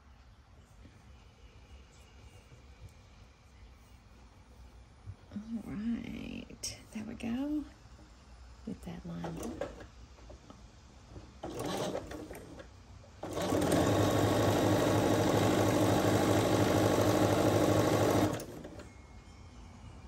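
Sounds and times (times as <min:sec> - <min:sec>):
sewing machine stitching: 0:11.4 - 0:18.8.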